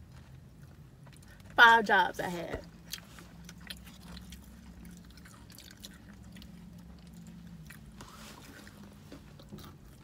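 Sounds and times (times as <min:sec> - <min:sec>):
faint chewing: 0:00.0 - 0:01.6, 0:02.6 - 0:10.0
low steady hum: 0:00.0 - 0:10.0.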